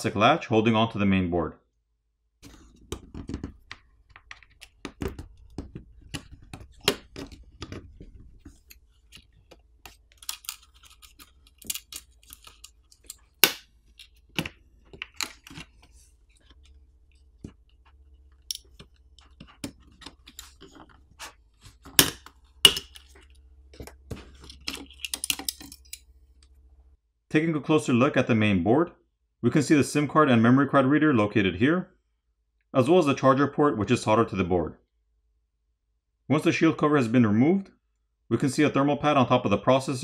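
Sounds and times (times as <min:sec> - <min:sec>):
tools clicking and scraping plastic: 0:02.4 - 0:26.5.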